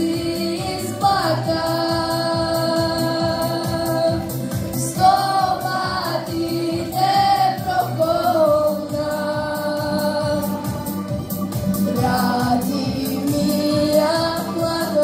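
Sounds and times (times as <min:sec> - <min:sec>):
choir singing: 0:00.0 - 0:10.6, 0:11.9 - 0:15.0
accompaniment with steady beat: 0:00.0 - 0:15.0.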